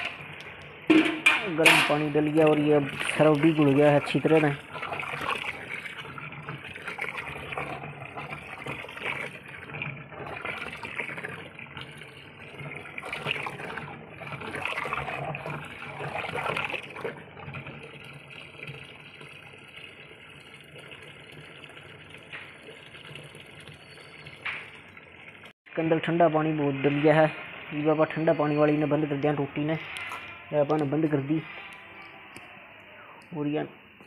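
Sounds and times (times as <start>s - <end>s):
water running from hose into tub: 0.0s - 25.6s.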